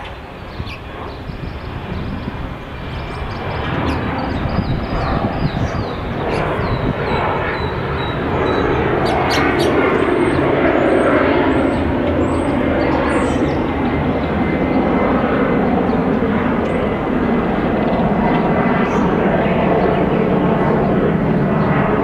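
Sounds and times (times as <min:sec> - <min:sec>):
loud steady rumbling: 0:00.0 - 0:10.8
small birds chirping: 0:00.0 - 0:17.0, 0:17.6 - 0:22.0.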